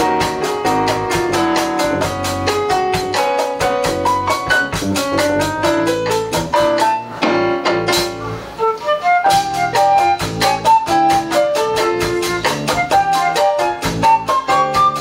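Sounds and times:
drum kit beat: 0.0s - 8.4s, 9.1s - 15.0s
flute melody: 4.0s - 6.2s, 8.4s - 15.0s.

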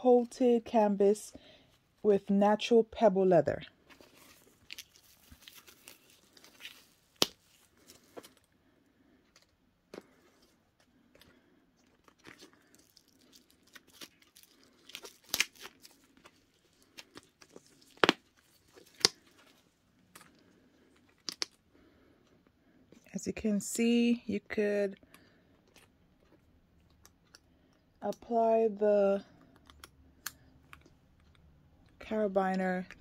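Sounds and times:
canvas pouch rustling: 3.8s - 8.5s.

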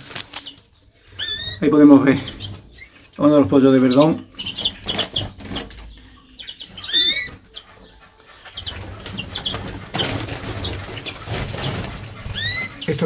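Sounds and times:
finches chirping: 0.3s - 13.0s
wing flutters: 6.9s - 13.0s.

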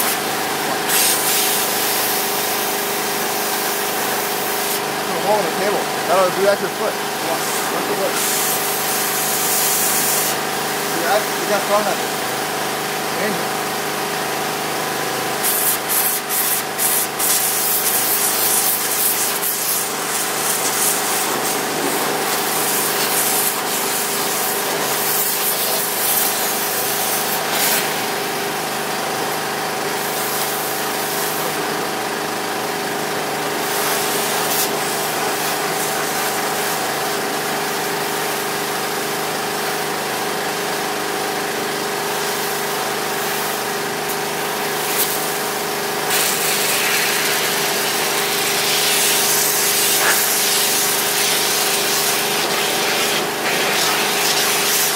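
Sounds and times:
small engine running: 0.0s - 54.9s
hiss of spray: 0.9s - 2.2s, 7.4s - 10.4s, 15.4s - 27.9s, 46.1s - 54.9s.

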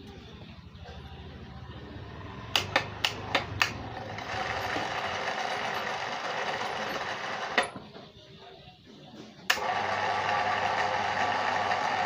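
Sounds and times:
hoist motor whirring: 2.5s - 7.8s, 9.5s - 12.0s
switch clicks: 2.6s - 3.8s.

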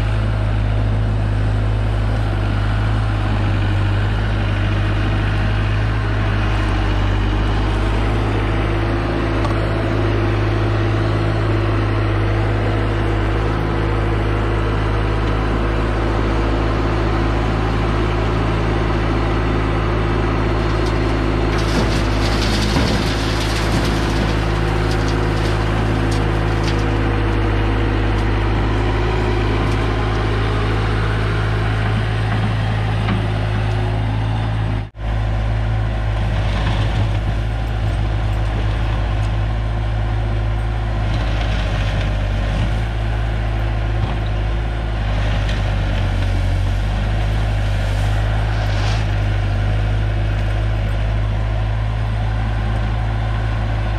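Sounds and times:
diesel engine running: 0.0s - 53.9s.

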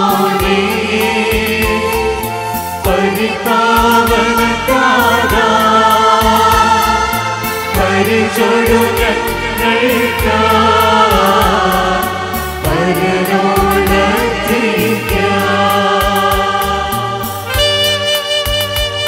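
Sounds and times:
choir singing a hymn: 0.0s - 17.6s
electronic keyboard: 0.0s - 19.0s.

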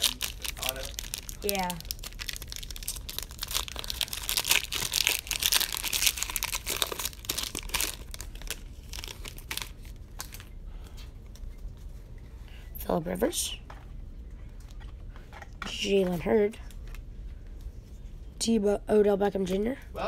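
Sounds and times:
foil wrappers tearing and crinkling: 0.0s - 10.5s.

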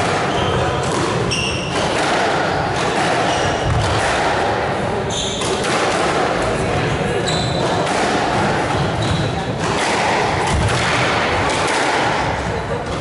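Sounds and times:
murmur of spectators: 0.0s - 13.0s
shoes squeaking on wooden floor: 0.3s - 1.8s, 5.1s - 5.6s, 7.2s - 7.8s, 8.7s - 9.4s.

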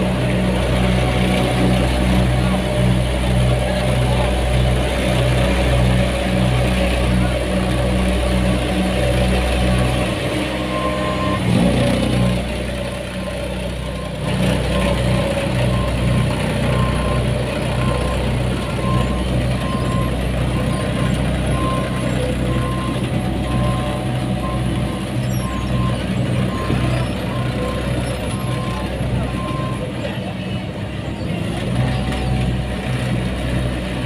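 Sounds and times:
diesel machinery engines running: 0.0s - 34.0s
backup alarm beeping: 13.2s - 29.9s.

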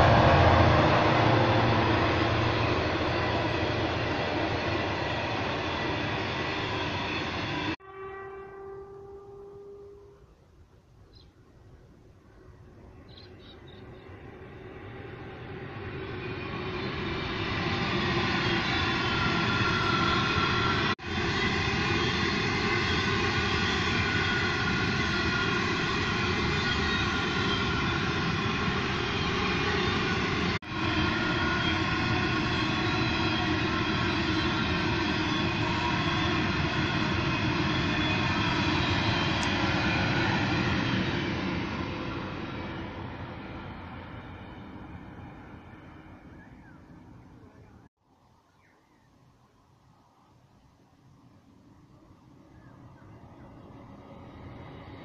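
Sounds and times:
train wheels rumbling on rail: 0.0s - 7.8s, 12.5s - 47.8s, 51.6s - 55.0s.

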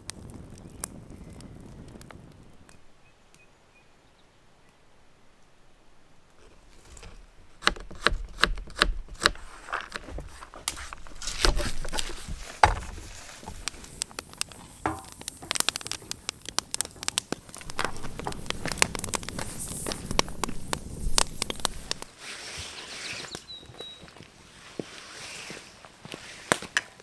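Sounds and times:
crackling campfire: 0.0s - 27.0s
metal spoon stirring in frying pan: 14.5s - 16.0s.

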